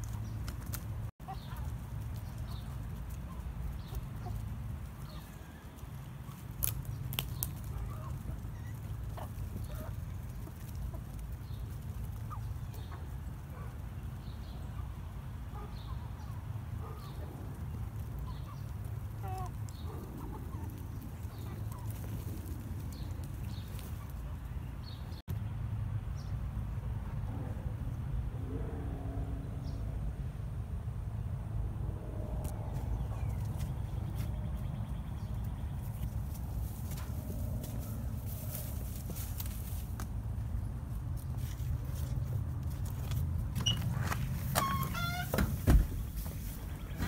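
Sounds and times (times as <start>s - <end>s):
steady low rumble: 25.3s - 43.5s.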